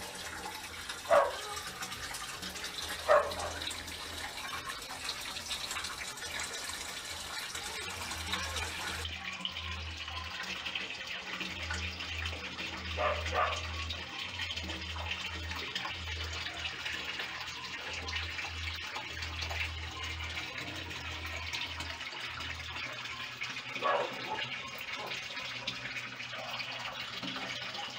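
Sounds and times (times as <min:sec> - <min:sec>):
running splashing water: 0:00.0 - 0:27.9.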